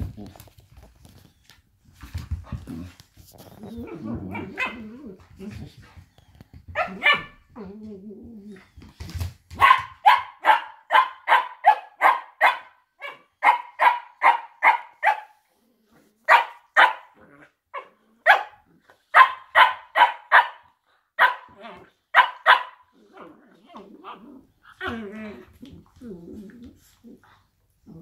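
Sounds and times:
dog growling: 0:02.6 - 0:05.8, 0:22.9 - 0:28.0
dogs barking sharply: 0:09.6 - 0:15.4, 0:16.3 - 0:17.2, 0:17.8 - 0:22.8.

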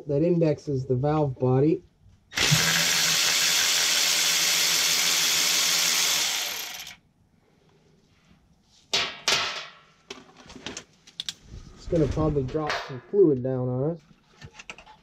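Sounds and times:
cordless power tool spinning: 0:02.3 - 0:07.0.

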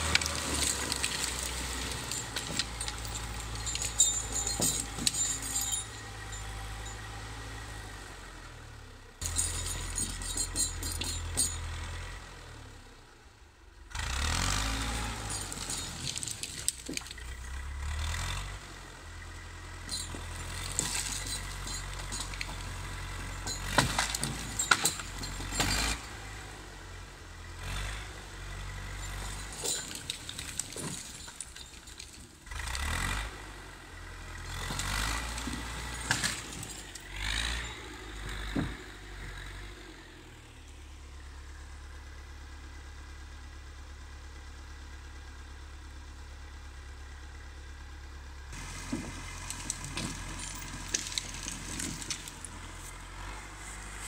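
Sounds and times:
diesel engine droning: 0:00.0 - 0:54.0
metallic knocks and rattles: 0:00.2 - 0:07.0, 0:09.2 - 0:11.8, 0:19.9 - 0:26.0.

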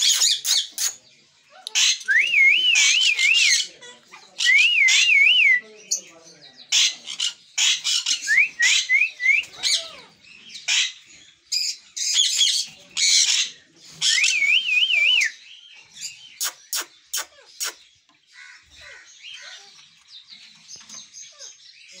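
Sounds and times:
parrots screeching: 0:00.0 - 0:02.2, 0:06.7 - 0:14.5, 0:16.0 - 0:19.8
parrot chatter: 0:00.0 - 0:05.3, 0:06.7 - 0:14.6, 0:16.0 - 0:22.0.

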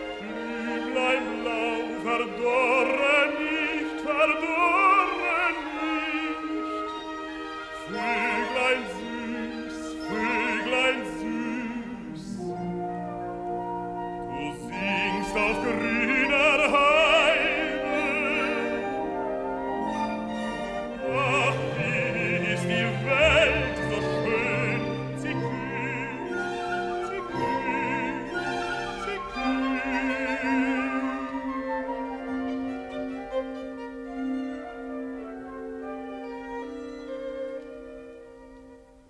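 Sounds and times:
symphony orchestra: 0:00.0 - 0:39.0
operatic baritone singing: 0:00.1 - 0:06.8, 0:07.8 - 0:13.0, 0:14.2 - 0:32.6.

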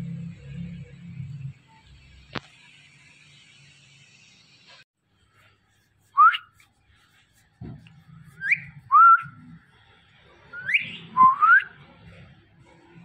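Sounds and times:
parakeet whistling: 0:08.4 - 0:09.4, 0:10.5 - 0:11.8.

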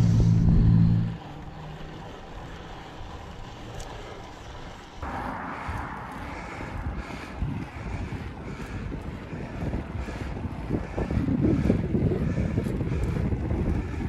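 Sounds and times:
wind noise on microphone: 0:00.0 - 0:01.3, 0:05.0 - 0:14.0
motorcycle engines passing: 0:00.0 - 0:10.1.

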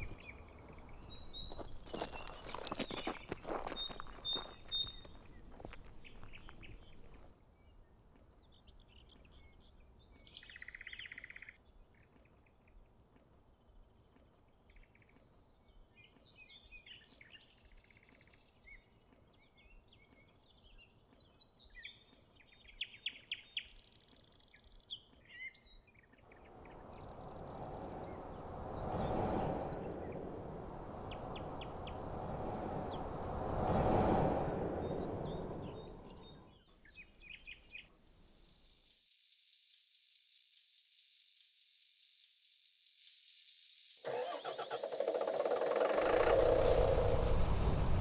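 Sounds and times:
small birds chirping: 0:00.0 - 0:33.8, 0:34.4 - 0:39.9
rushing noise: 0:26.3 - 0:36.5, 0:44.4 - 0:48.0.

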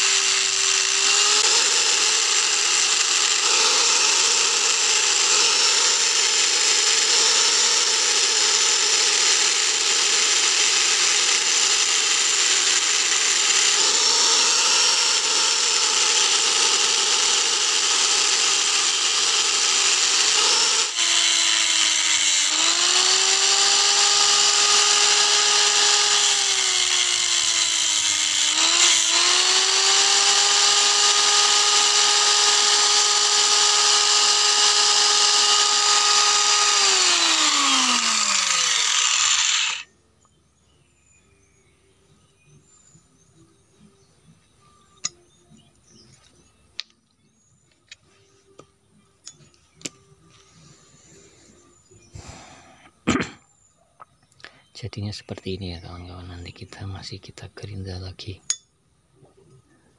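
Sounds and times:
angle grinder cutting steel: 0:00.0 - 0:39.9.

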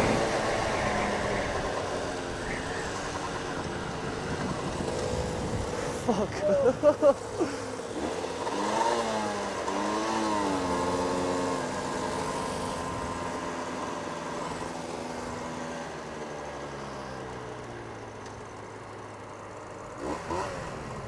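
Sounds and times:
motorcycle engine revving: 0:00.0 - 0:16.8, 0:19.7 - 0:21.0
wind rush: 0:03.7 - 0:06.1.

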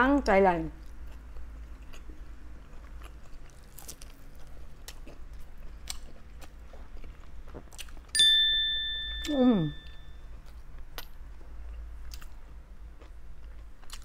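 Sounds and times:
chewing and biting sausage: 0:00.8 - 0:08.1, 0:10.3 - 0:14.0
bell-like ding: 0:08.2 - 0:10.2.

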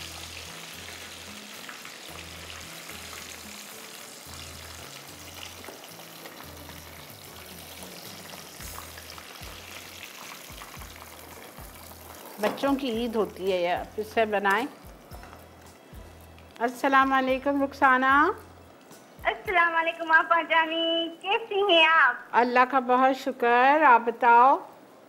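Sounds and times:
food deep-frying in oil: 0:00.0 - 0:17.6
soft background music: 0:00.0 - 0:25.0.

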